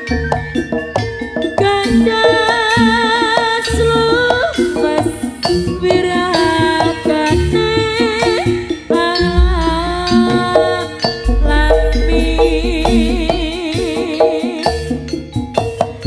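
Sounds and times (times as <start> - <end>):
wavering melody line: 9.2 - 14.6
hand drum strokes: 9.3 - 14.4.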